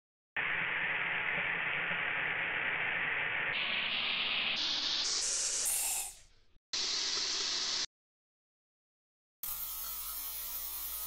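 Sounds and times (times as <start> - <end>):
sped-up aerosol spray hiss: 0.6 - 7.9.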